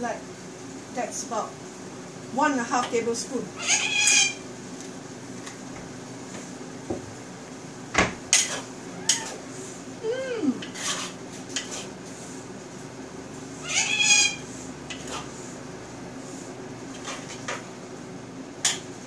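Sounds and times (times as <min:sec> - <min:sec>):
metal spatula scraping a wok: 0:08.3 - 0:09.4, 0:10.6 - 0:12.0, 0:14.0 - 0:15.4, 0:16.9 - 0:17.5.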